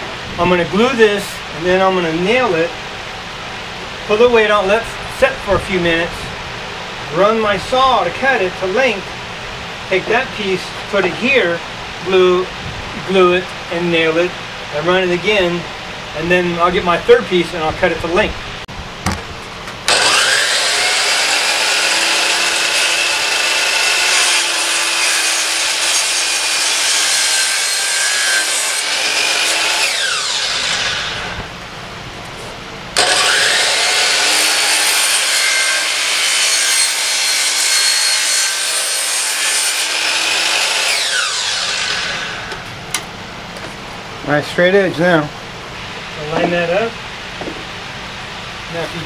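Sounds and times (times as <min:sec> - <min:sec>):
miter saw cutting wood: 0:19.9 - 0:31.4, 0:33.0 - 0:42.6.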